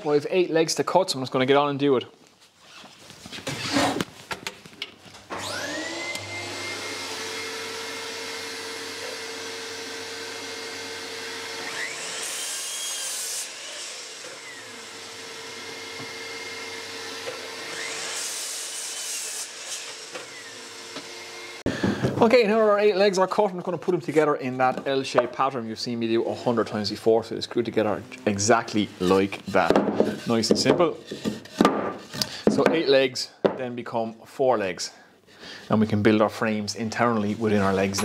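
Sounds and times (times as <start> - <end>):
dust extractor whining: 5.3 - 18.0
mitre saw cutting wood: 5.4 - 21.6.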